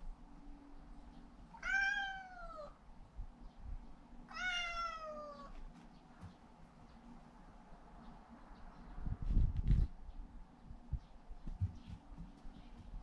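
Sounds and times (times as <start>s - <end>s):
cat meowing: 1.6s - 2.8s, 4.3s - 5.5s.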